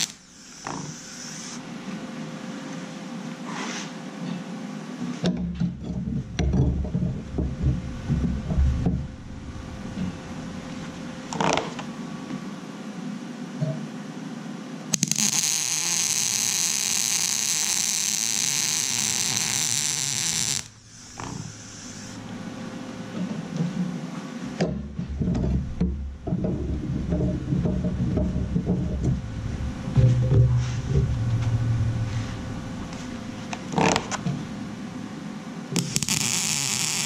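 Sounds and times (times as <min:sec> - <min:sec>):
welding arc hissing: 0:00.0 - 0:01.6, 0:15.0 - 0:22.2, 0:35.8 - 0:37.0
thumps and rustling: 0:05.2 - 0:11.9, 0:24.6 - 0:34.6.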